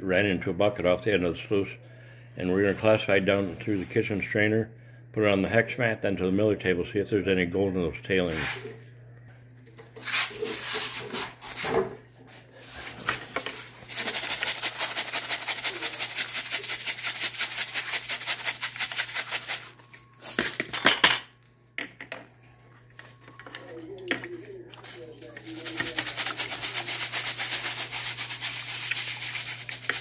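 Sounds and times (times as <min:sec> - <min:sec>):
gravel rattling in a strainer: 0:13.8 - 0:20.4, 0:24.8 - 0:30.0.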